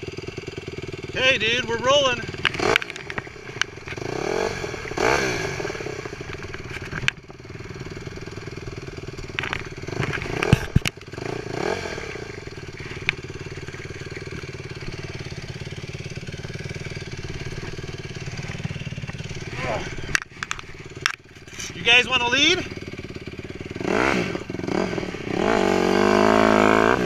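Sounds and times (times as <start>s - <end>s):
dirt bike engines idling: 0.0s - 27.0s.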